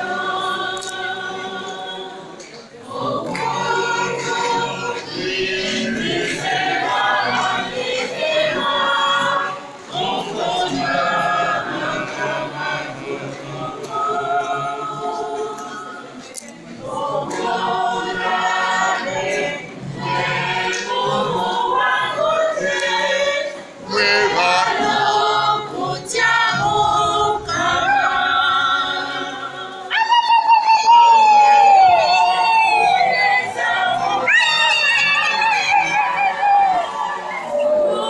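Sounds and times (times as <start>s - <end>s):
choir singing: 0.0s - 38.0s
high wavering voices: 21.0s - 38.0s.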